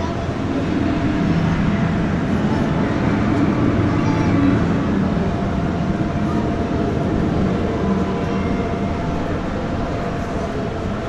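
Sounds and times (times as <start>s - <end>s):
faint steady tones: 0.0s - 11.0s
ventilation machine drone: 0.0s - 11.0s.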